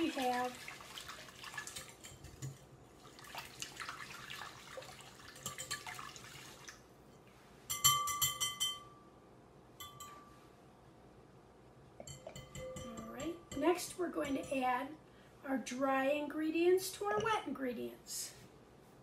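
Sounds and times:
whisk beating batter: 0.0s - 2.6s
whisk clinking on glass bowl: 5.3s - 6.1s, 7.7s - 9.0s, 9.8s - 10.3s, 12.0s - 14.6s.

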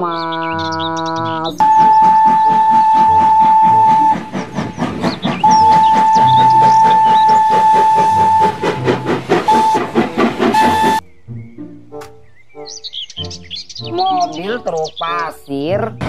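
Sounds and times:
steam engine chuffing: 0.4s - 11.0s
steam locomotive whistle: 1.6s - 11.0s.

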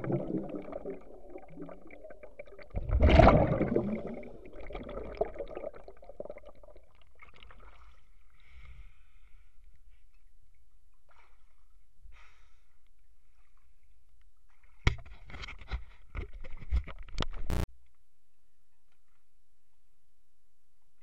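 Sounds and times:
underwater low rumble: 0.0s - 7.0s
regulator bubbles: 0.0s - 7.5s.

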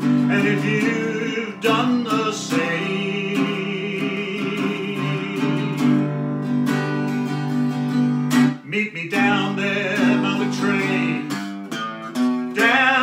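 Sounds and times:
man singing: 0.0s - 6.2s, 8.5s - 11.6s, 12.5s - 13.0s
acoustic guitar strumming chords: 0.0s - 13.0s.

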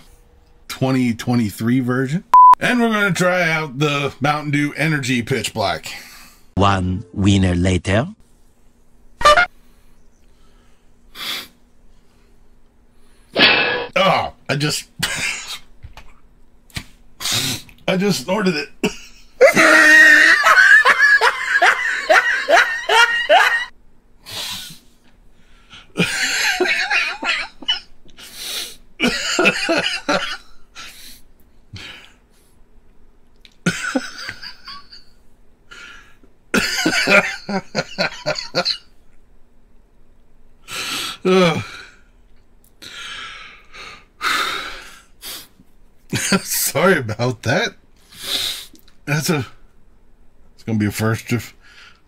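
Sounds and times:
man coughing and sputtering: 15.0s - 15.6s, 18.8s - 20.0s
man laughing: 18.8s - 23.7s, 26.0s - 27.8s, 29.0s - 30.4s, 33.6s - 35.0s, 36.6s - 38.8s.

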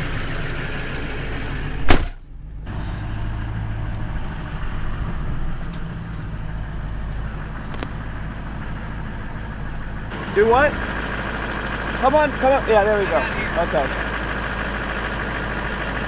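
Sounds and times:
pickup engine running: 0.0s - 16.0s
sharp thump: 1.8s - 2.2s.

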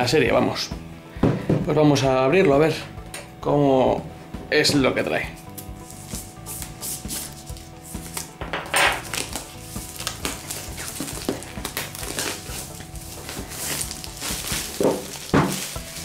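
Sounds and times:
plastic film crackling and tearing: 5.9s - 8.4s, 9.0s - 16.0s.

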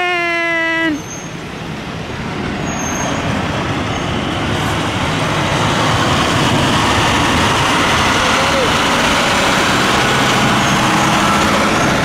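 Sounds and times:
dump truck diesel engine rumble: 0.9s - 12.0s.

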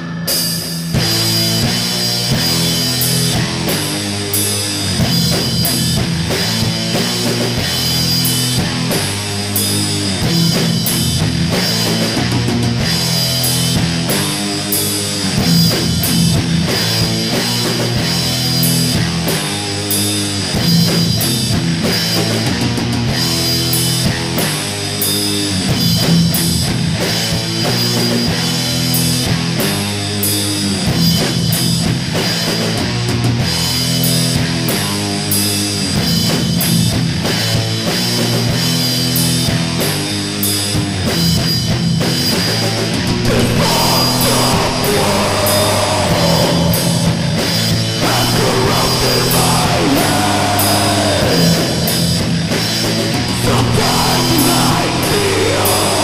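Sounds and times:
distorted electric guitars: 0.0s - 56.0s
pounding drum kit: 0.0s - 56.0s.

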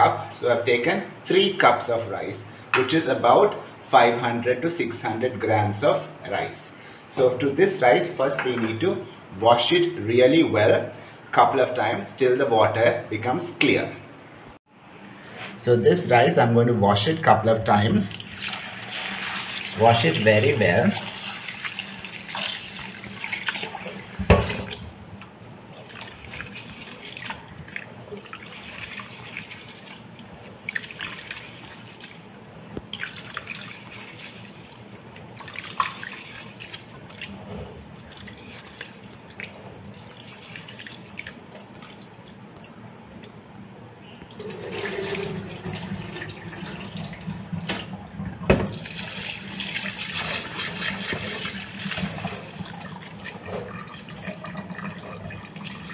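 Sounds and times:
water sloshing with rice grains: 25.7s - 42.4s.

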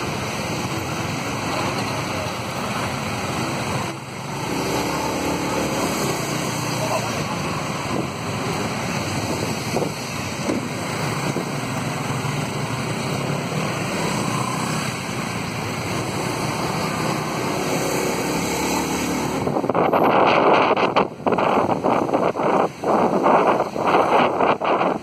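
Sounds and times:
motorbike engine and road noise: 0.0s - 25.0s
street traffic: 0.0s - 25.0s
wind buffeting microphone: 7.5s - 11.7s, 19.3s - 25.0s.

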